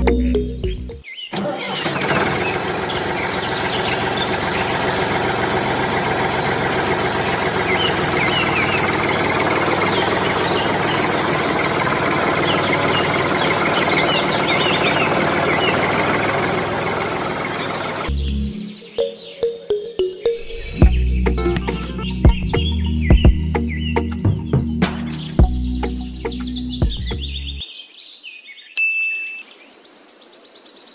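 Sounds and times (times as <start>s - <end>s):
diesel tractor engine knocking: 0.0s - 18.1s.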